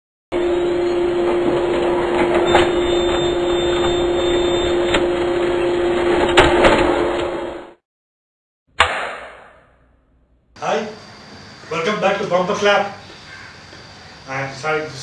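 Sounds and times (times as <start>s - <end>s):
machine-like rumble with hum: 0.3s - 7.8s
sharp clap-like hit: 8.7s - 9.8s.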